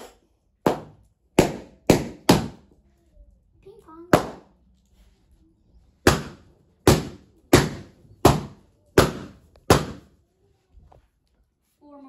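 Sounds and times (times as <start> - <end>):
balloons popping: 0.0 - 2.7, 4.1 - 4.6, 6.0 - 10.2.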